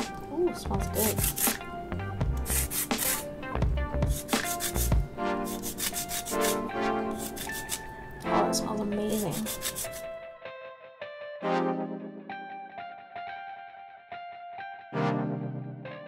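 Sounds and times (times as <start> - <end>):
zest grating on grater: 0.8 - 1.6, 2.4 - 3.3, 4.0 - 7.9, 9.1 - 10.1.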